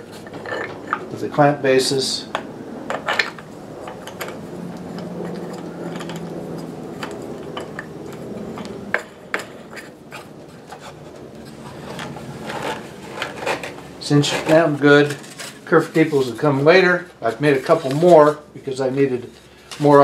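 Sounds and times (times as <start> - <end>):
wood and plastic scraping: 2.3 - 16.3.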